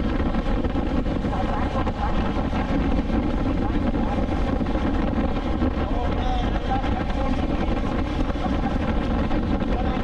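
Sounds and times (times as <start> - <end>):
motorcycle engine running: 0.0 - 10.0
road and wind noise: 0.0 - 10.0.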